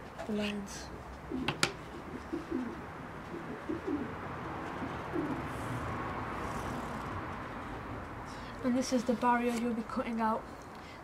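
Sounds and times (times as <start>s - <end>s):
pigeon cooing: 1.2s - 5.9s.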